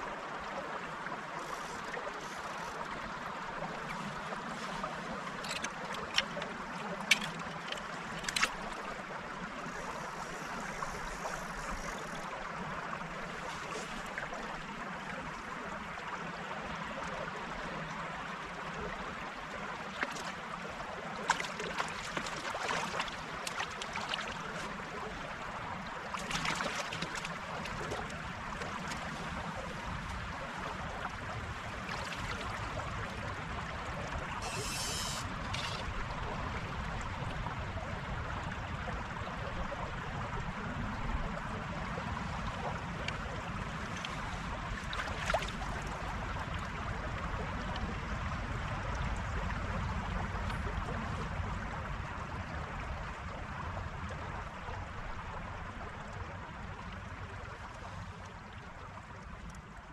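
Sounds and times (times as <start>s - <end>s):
river running over stones: 0.0s - 59.9s
short water splashes: 3.7s - 9.0s, 21.2s - 25.1s, 26.0s - 32.9s, 43.1s - 46.1s.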